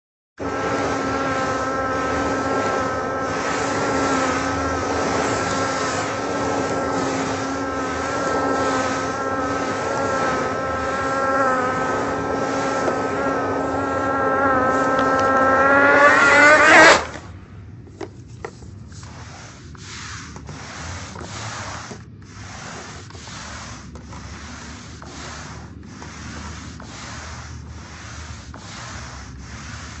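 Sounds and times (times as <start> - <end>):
vacuum cleaner motor droning: 0.4 - 17.2.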